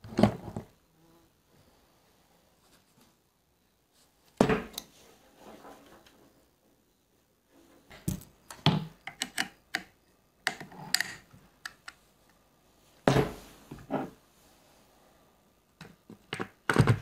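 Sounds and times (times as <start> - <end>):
air rifle clicks and taps: 8.5 - 12.0.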